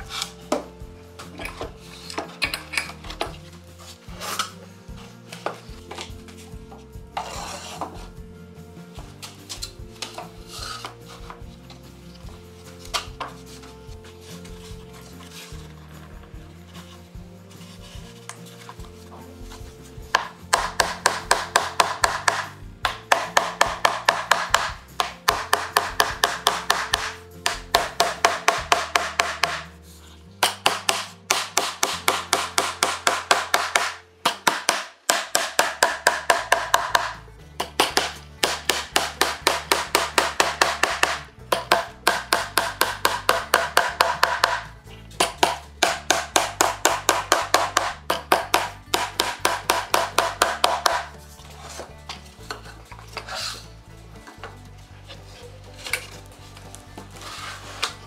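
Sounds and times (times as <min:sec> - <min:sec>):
background music: 0:00.0 - 0:58.0
hammer striking nails into wood: 0:20.1 - 0:29.7, 0:30.4 - 0:51.1.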